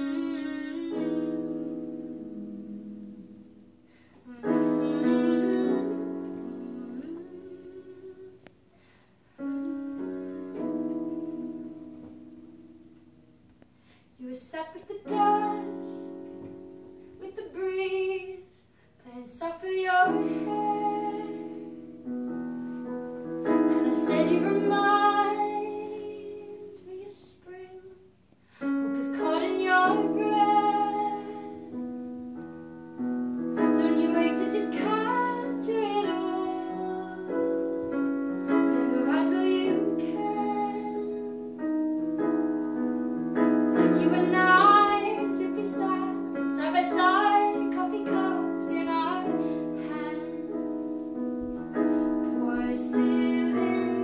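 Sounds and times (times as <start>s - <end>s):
woman singing: 0.0s - 3.5s, 4.2s - 8.5s, 14.2s - 16.2s, 17.2s - 21.9s, 23.4s - 28.1s, 28.8s - 31.8s, 33.6s - 41.7s, 43.7s - 50.7s, 51.5s - 54.0s
electric keyboard piano chords: 0.0s - 8.6s, 9.3s - 13.8s, 19.7s - 27.0s, 28.6s - 54.0s.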